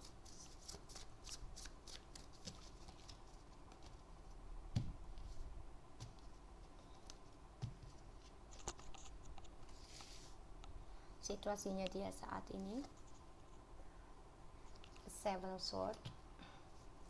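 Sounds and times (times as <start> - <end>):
cards shuffling: 0.0 - 4.0.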